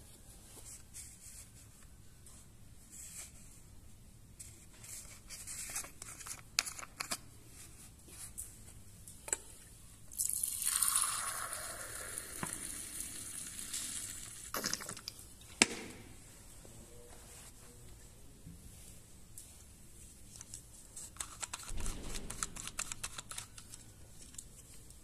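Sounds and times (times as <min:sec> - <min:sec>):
liquid pouring into glass: 0:10.1 - 0:14.4.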